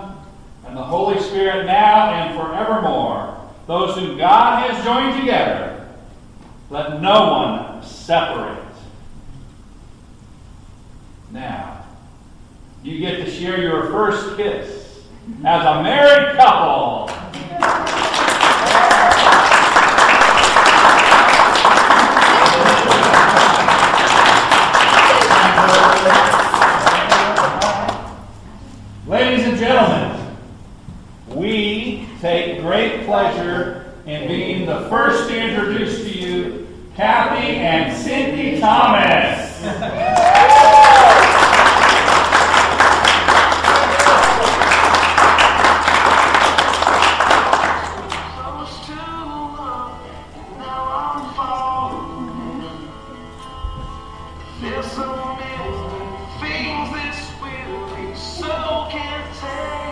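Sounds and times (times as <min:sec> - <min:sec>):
crowd applauding: 0:17.1 - 0:28.1, 0:40.0 - 0:48.5.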